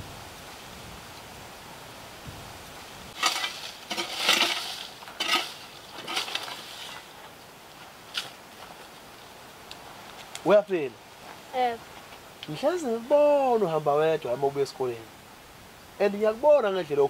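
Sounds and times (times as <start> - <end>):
rustling through dry grass and leaves: 0.0 - 14.4
steady outdoor hiss: 0.0 - 17.0.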